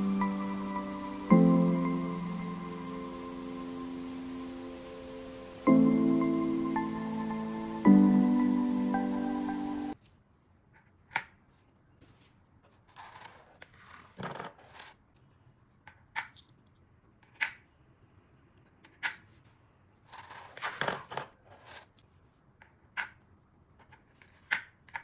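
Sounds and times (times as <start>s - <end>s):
music: 0.0s - 10.0s
coins clinking onto cardboard: 20.2s - 21.8s.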